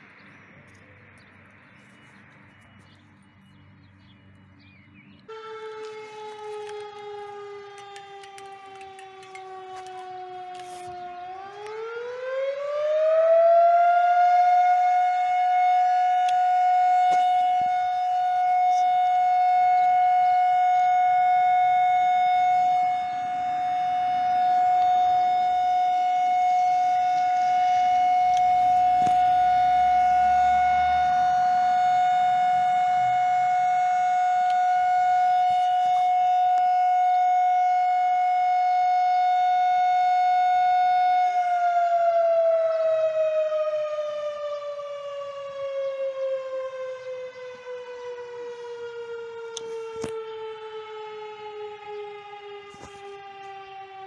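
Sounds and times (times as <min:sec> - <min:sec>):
siren winding up: 0:05.2 - 0:38.2.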